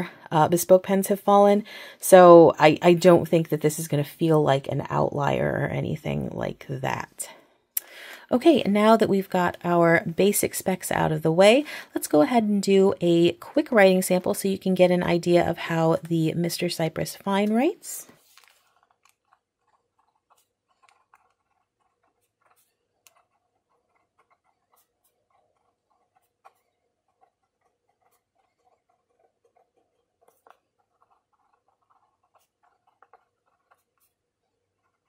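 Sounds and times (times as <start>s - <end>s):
pen nib scratching on paper: 17.6s - 35.0s.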